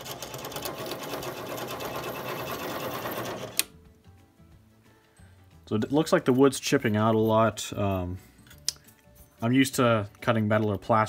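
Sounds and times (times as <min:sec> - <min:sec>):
lathe click: 0:02.2 - 0:03.7.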